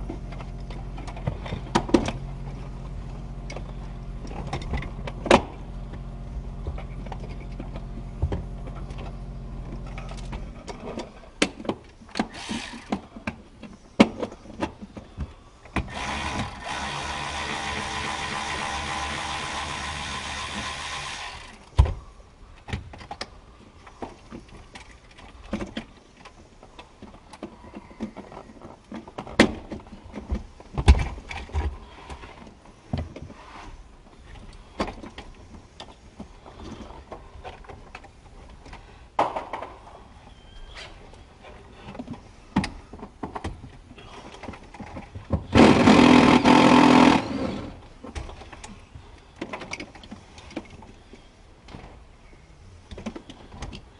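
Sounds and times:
tools and plastic parts clicking: 0:48.1 - 0:51.0.

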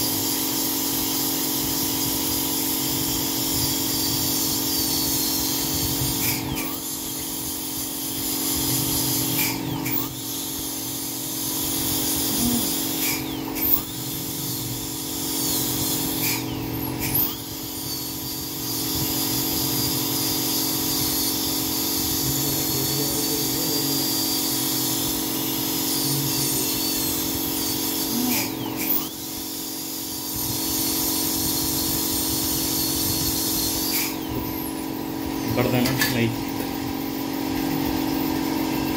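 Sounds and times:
dental drill whining: 0:00.0 - 0:38.9.

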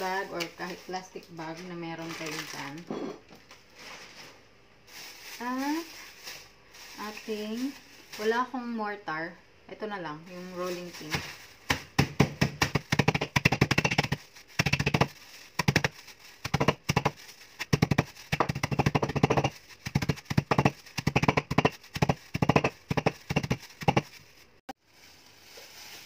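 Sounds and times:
plastic bag crackling: 0:00.0 - 0:02.9, 0:03.6 - 0:08.5, 0:10.3 - 0:21.0, 0:23.2 - 0:26.0
crackers crushed under rolling pin: 0:11.1 - 0:24.2.

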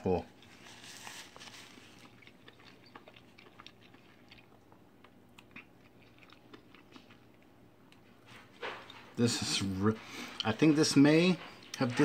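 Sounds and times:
chewing food: 0:00.2 - 0:09.2.

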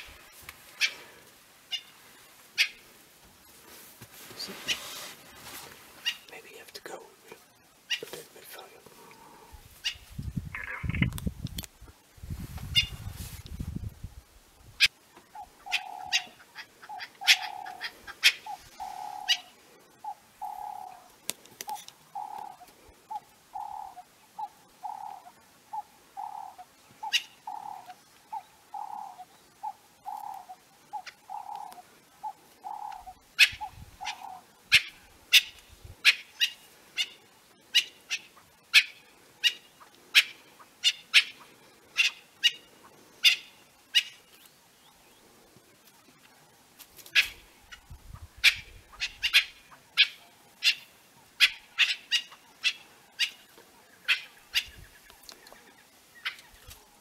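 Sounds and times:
bird alarm calls: 0:09.8 - 0:11.1, 0:14.8 - 0:21.1, 0:21.7 - 0:44.3, 0:47.1 - 0:55.1.

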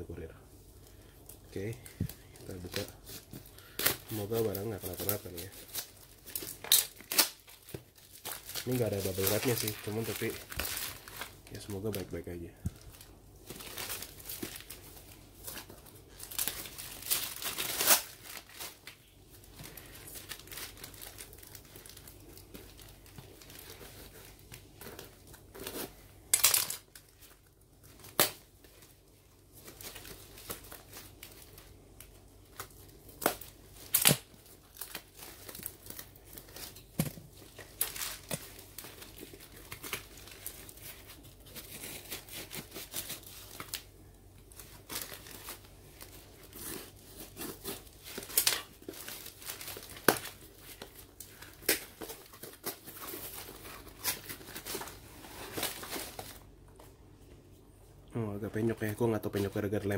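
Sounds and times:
plastic crinkling: 0:00.8 - 0:56.9
tape ripping off cardboard: 0:06.5 - 0:08.4, 0:33.2 - 0:35.6.

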